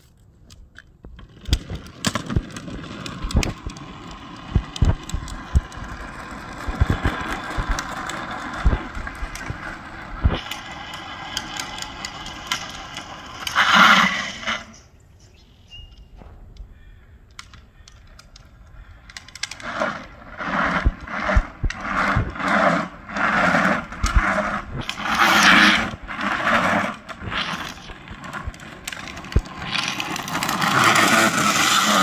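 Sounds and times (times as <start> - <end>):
plastic wheels skidding on asphalt: 0.8 - 15.0, 17.4 - 32.0
sharp clicks: 15.8 - 20.1.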